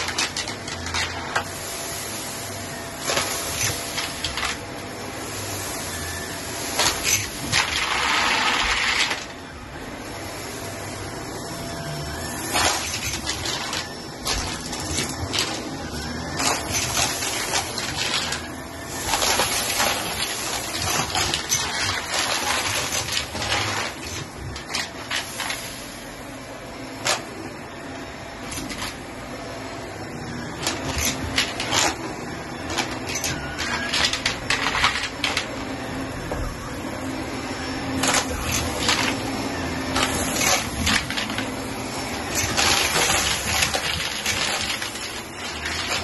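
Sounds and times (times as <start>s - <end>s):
debris rattling in vacuum: 0.0s - 2.4s, 3.0s - 6.0s, 6.6s - 9.4s, 12.2s - 25.9s, 30.6s - 35.8s, 37.9s - 46.0s
vacuum cleaner running on carpet: 0.0s - 46.0s.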